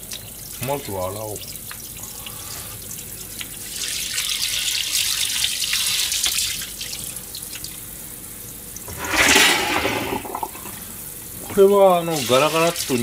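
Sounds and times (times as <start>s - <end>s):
water splashing: 8.7s - 13.0s.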